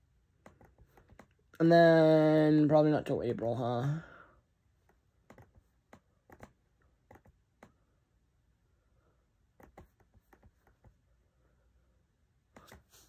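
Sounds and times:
computer keyboard clicks: 0:05.3 - 0:07.7, 0:09.6 - 0:10.9.

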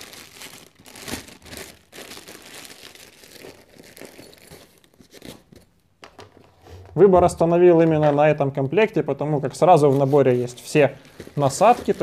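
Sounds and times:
plastic packaging crinkling: 0:00.0 - 0:05.6, 0:10.0 - 0:12.0.

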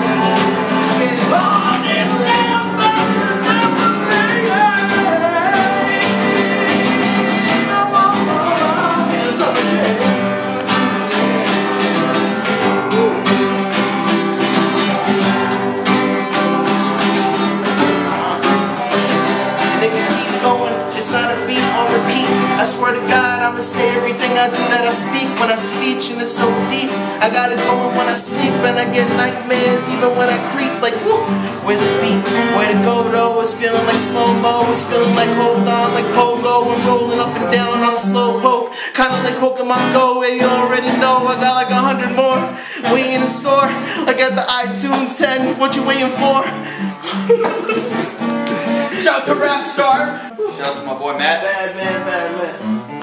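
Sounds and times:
person singing: 0:00.0 - 0:50.7
acoustic guitar strumming: 0:00.0 - 0:53.0.

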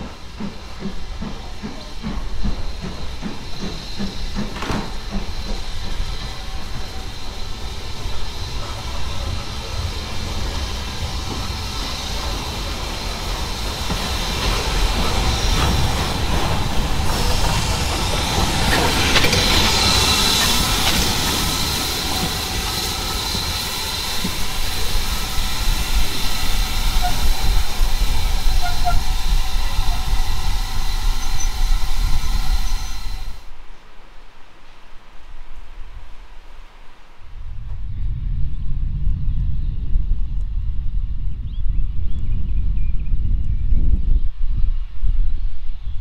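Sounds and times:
rumble of wheels on rail: 0:00.0 - 0:33.7, 0:35.2 - 0:46.0
hiss of steam: 0:00.0 - 0:34.0.

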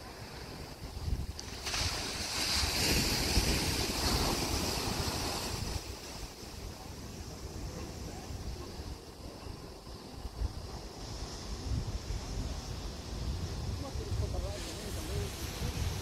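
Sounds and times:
wind buffeting microphone: 0:00.0 - 0:16.0
surf breaking against rocks: 0:00.2 - 0:06.7.

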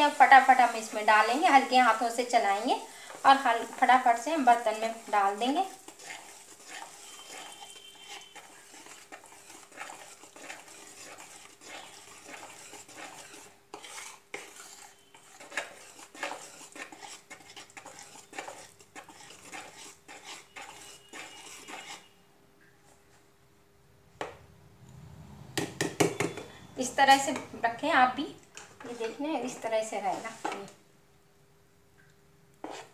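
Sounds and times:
wire whisk scraping plastic bowl: 0:00.0 - 0:22.1, 0:28.8 - 0:30.8, 0:32.6 - 0:32.9.

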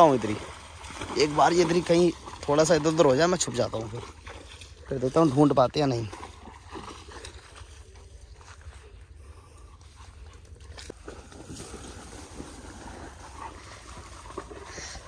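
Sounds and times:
soft panting: 0:08.4 - 0:10.9, 0:13.3 - 0:15.0.

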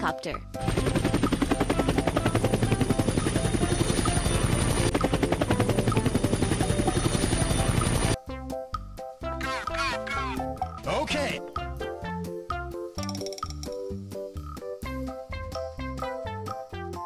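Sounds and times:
helicopter rotor chopping: 0:00.6 - 0:08.2.

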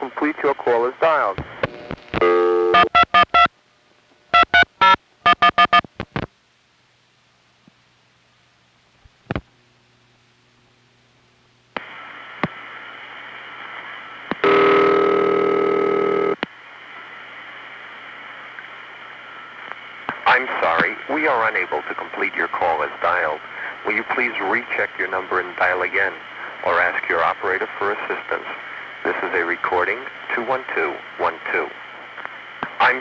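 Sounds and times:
open line hiss: 0:05.8 - 0:33.0
buzzy ringback tone: 0:14.4 - 0:16.4.

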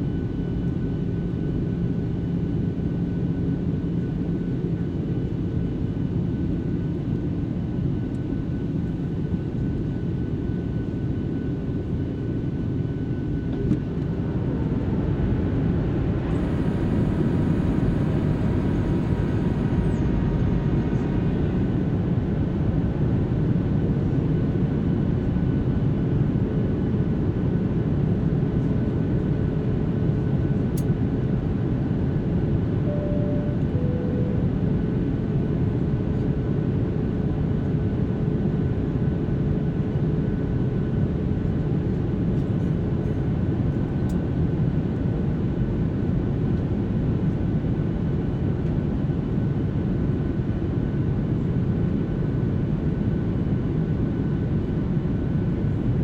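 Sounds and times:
airplane cabin rumble: 0:12.8 - 0:24.2, 0:32.7 - 0:35.8.

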